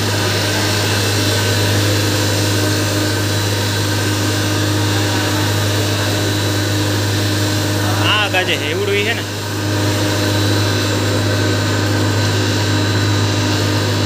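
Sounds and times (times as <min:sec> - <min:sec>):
grinding mill running: 0:00.0 - 0:14.0.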